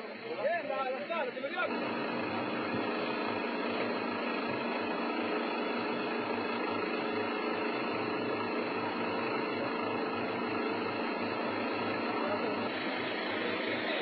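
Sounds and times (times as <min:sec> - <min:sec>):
engine drone with hiss: 0:00.0 - 0:14.0.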